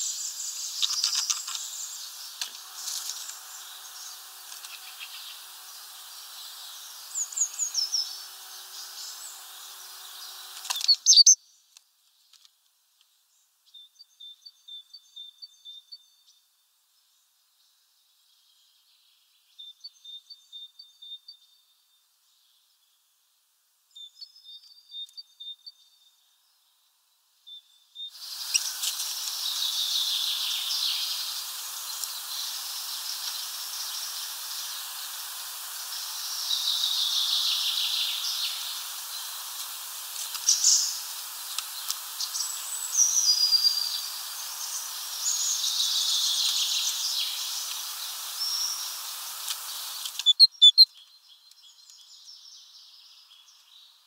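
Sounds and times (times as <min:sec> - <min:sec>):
steady outdoor hiss: 0:00.0 - 0:54.0
birds chirping and calling: 0:10.1 - 0:11.4, 0:49.6 - 0:50.9.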